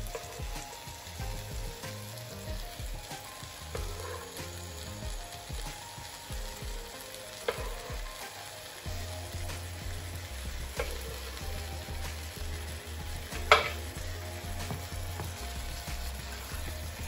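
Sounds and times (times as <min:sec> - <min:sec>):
food sizzling in a pan: 0:00.0 - 0:17.0.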